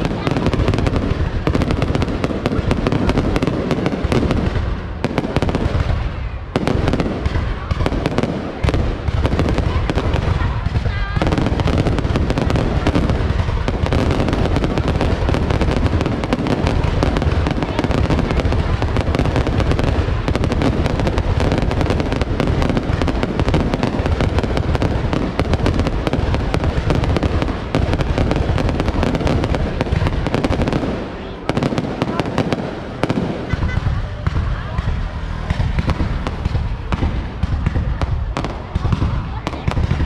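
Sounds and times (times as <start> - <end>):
fireworks bangs and crackles: 0.0 - 40.0.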